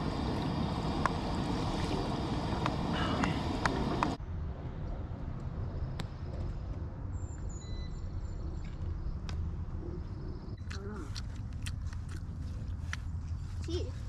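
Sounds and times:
rush of noise: 0.0 - 5.8
wind rumble on microphone: 0.0 - 10.6
faint bird chirps: 7.1 - 9.0.

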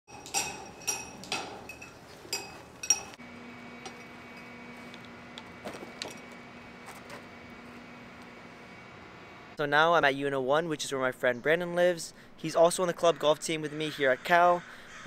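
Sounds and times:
golf clubs clinking: 0.1 - 3.2
steady low hum: 0.1 - 12.4.

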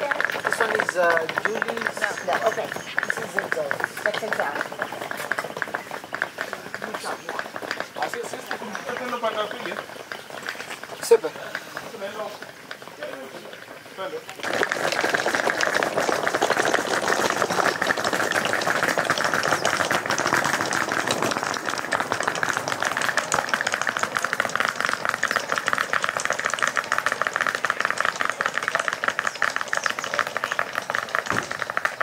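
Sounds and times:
suitcase wheels rattling on bricks: 0.0 - 32.0.

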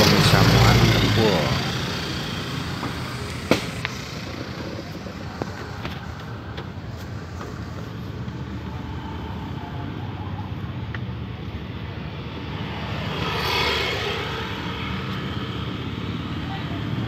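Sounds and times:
low traffic rumble: 0.0 - 17.0
vehicle passing close by: 12.0 - 17.0.

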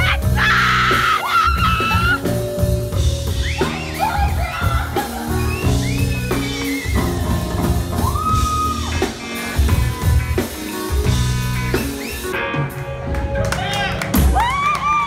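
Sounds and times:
electric bass guitar: 0.0 - 14.5
drum kit: 0.0 - 15.0
electric guitar: 0.0 - 15.0.

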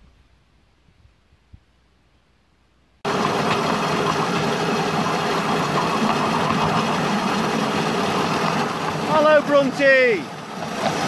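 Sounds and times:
engine idling: 3.0 - 11.0.

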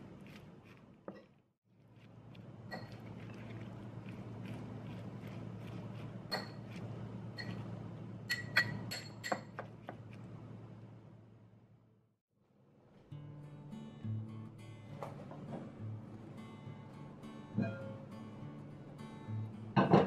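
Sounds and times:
utensil clinking against glass bowl: 6.3 - 6.8, 7.4 - 7.6, 8.3 - 9.6.

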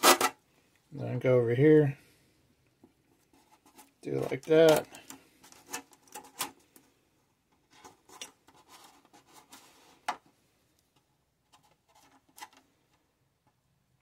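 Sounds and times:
scratching and rubbing on plastic: 3.0 - 6.9, 7.6 - 10.2, 11.4 - 12.9.

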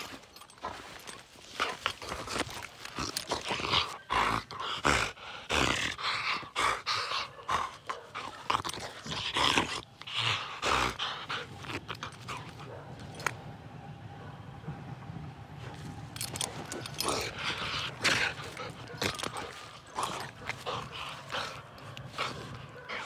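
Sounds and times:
dog making noises while playing: 15.6 - 23.0.

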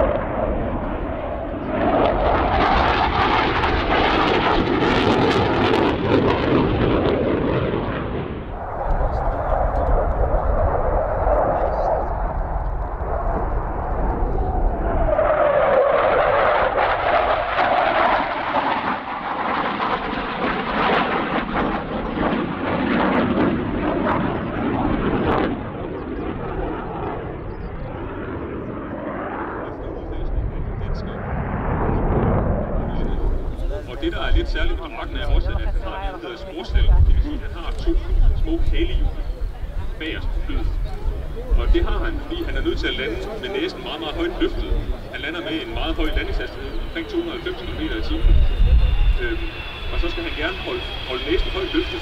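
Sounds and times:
jet engine roar: 0.0 - 52.0
afterburner crackling: 31.1 - 52.0.

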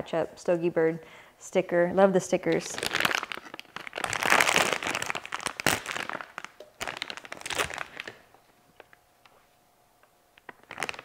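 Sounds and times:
plastic bag crinkling: 2.5 - 9.4, 10.4 - 11.0.

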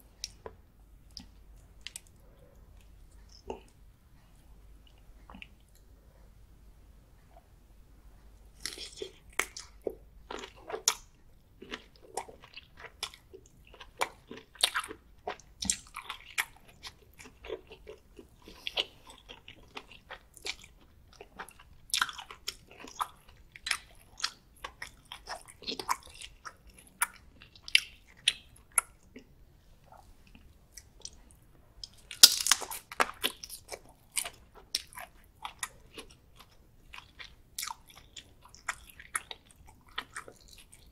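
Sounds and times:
wet chewing of prawns: 8.6 - 29.3, 29.9 - 40.9.

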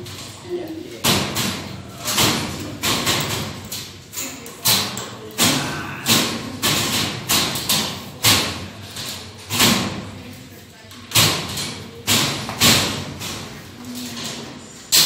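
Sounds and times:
sharp knocks on steel ceiling: 4.6 - 8.8, 11.1 - 13.4.

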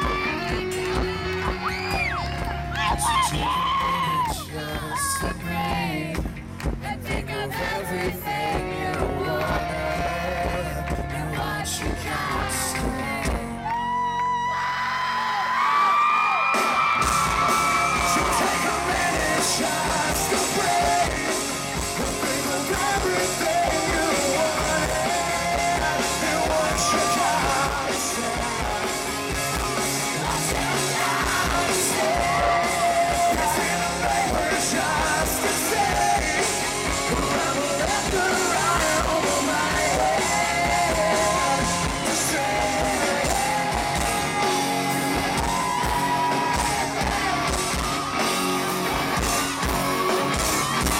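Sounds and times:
electric guitars: 0.0 - 50.9
man singing loudly: 2.8 - 6.3, 7.2 - 13.7, 17.4 - 47.6
drum beat: 16.6 - 50.9.

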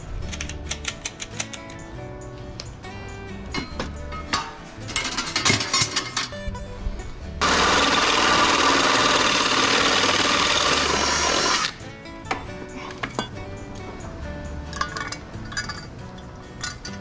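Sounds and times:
background music: 0.0 - 17.0
drill boring through metal: 7.4 - 11.8.

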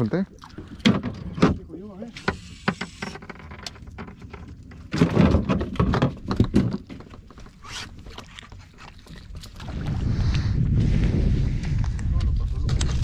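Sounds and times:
irregular knocks and thumps: 2.7 - 7.4.

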